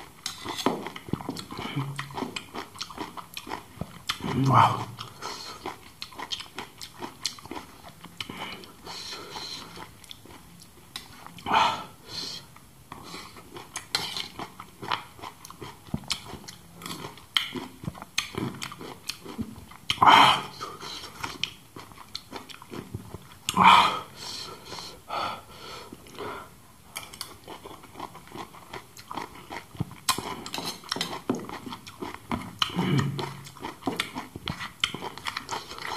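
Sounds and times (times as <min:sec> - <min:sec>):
wet chewing and lip-smacking: 0:00.0 - 0:11.4, 0:12.5 - 0:23.6, 0:26.9 - 0:35.9.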